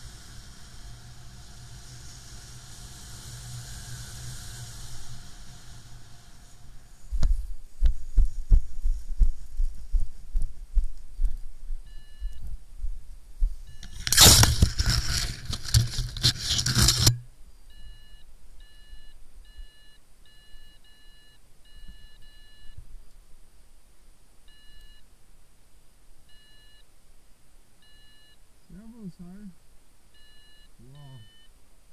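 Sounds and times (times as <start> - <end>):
short electronic beeps: 11.9 - 12.4, 27.8 - 28.4, 30.2 - 31.5.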